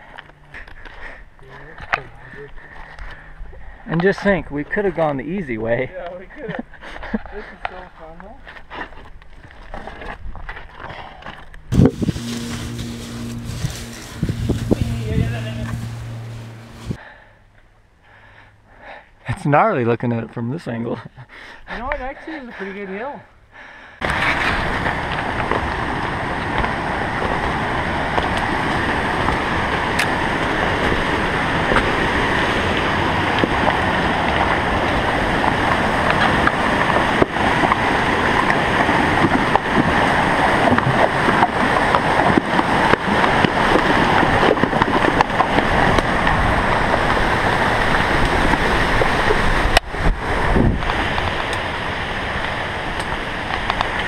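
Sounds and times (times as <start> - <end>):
creek water rushing: 24.0 - 54.0.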